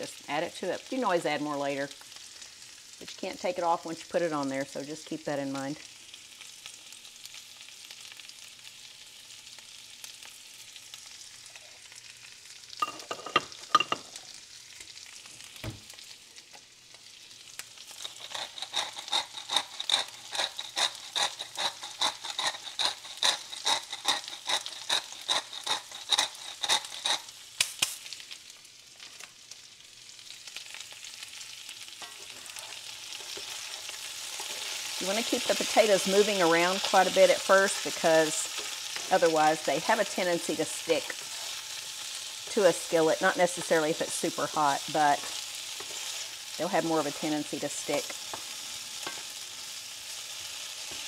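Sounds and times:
potatoes sizzling in grease: 0:00.0 - 0:51.0
grinder clicking: 0:18.0 - 0:28.0.

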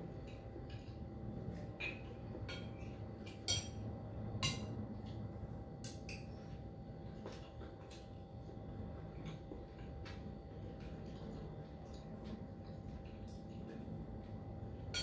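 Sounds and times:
cutlery clinking against a bowl: 0:00.2 - 0:03.8, 0:04.4 - 0:05.2, 0:14.8 - 0:15.0.

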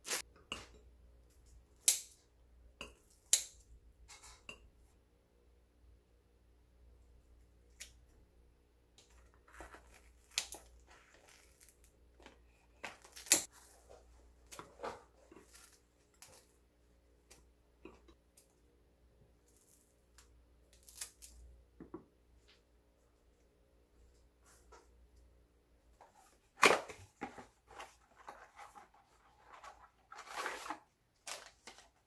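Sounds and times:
bread tearing: 0:09.1 - 0:11.9, 0:19.4 - 0:21.5.

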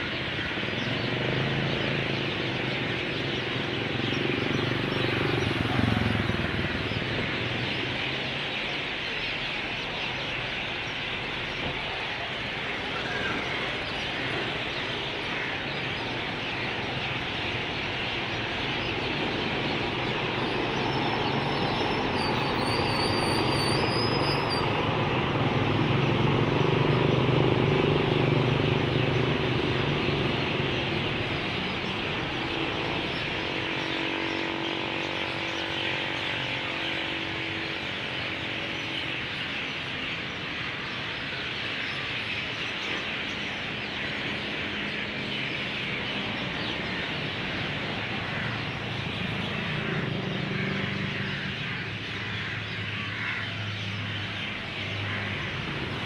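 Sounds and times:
bus driving past: 0:00.9 - 0:09.0, 0:16.0 - 0:41.0.

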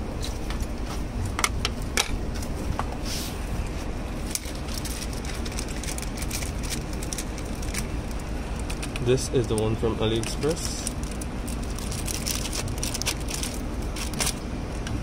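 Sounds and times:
engine idling hum: 0:03.4 - 0:15.0.

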